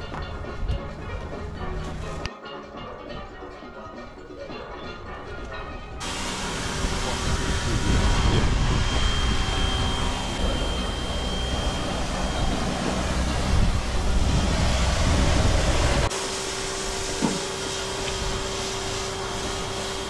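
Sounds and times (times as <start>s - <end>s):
steady low rushing noise: 6.0s - 16.1s
pressure washer spraying: 6.0s - 20.0s.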